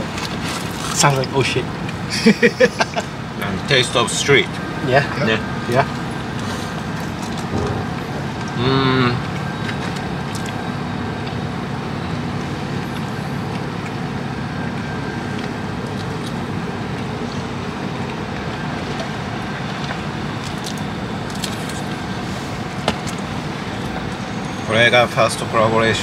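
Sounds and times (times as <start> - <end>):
low engine hum: 0.0 - 26.0
street traffic noise: 0.0 - 26.0.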